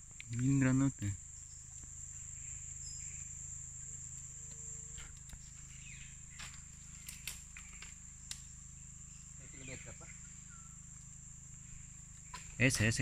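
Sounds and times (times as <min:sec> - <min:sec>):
insects droning: 0:00.0 - 0:13.0
low steady hum: 0:00.0 - 0:13.0
clicks and knocks among branches: 0:04.1 - 0:08.6, 0:12.1 - 0:13.0.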